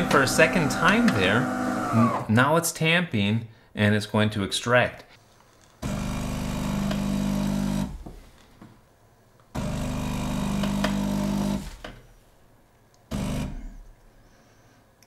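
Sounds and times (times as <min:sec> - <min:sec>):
espresso machine pump buzzing: 0:00.0 - 0:02.3, 0:05.8 - 0:08.2, 0:09.6 - 0:11.8, 0:13.1 - 0:13.6.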